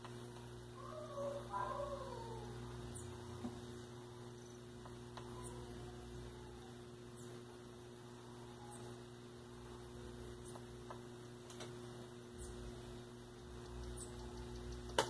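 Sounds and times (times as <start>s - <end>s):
faint mains electrical hum: 0.0s - 15.0s.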